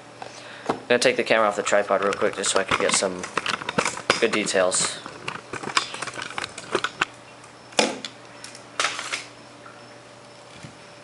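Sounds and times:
clattering knocks: 1.9s - 7.1s.

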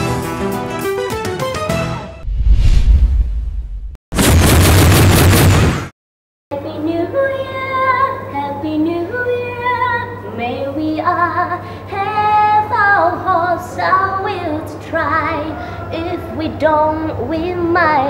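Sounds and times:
woman singing slow song: 6.5s - 18.0s.

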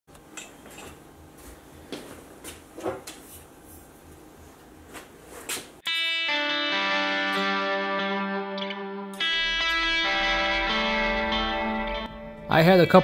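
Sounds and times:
electric guitar music: 5.8s - 13.0s.

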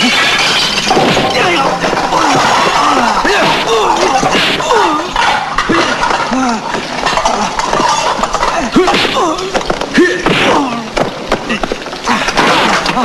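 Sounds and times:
kitchenware clattering: 0.0s - 10.0s
men grunting and yelling: 1.3s - 13.0s.

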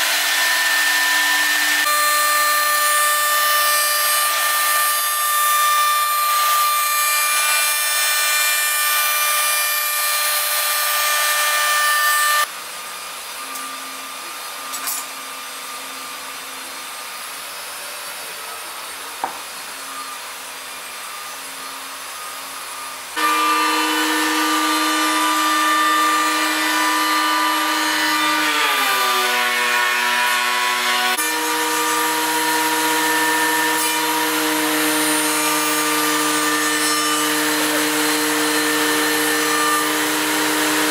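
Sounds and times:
router whining cutting wood: 0.0s - 40.9s.

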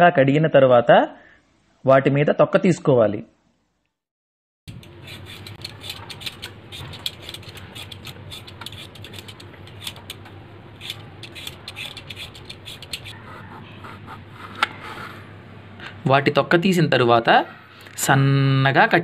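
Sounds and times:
peeler scraping potato skin: 4.7s - 10.2s, 10.8s - 13.2s.

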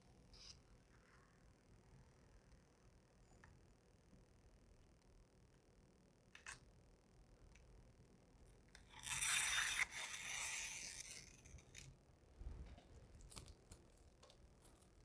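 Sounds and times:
vinyl film tearing: 8.9s - 11.8s.

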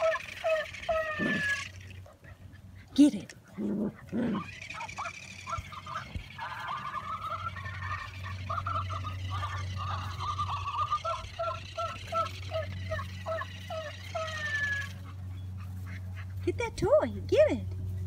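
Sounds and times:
puppies yipping and whining: 0.0s - 16.9s
low steady hum: 0.0s - 18.0s.

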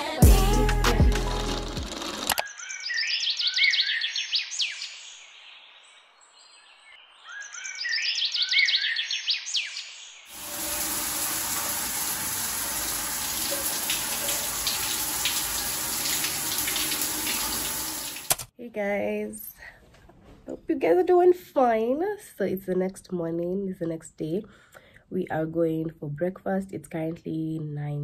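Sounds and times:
songbird singing: 2.4s - 10.3s
water running from a tap: 10.3s - 18.5s.

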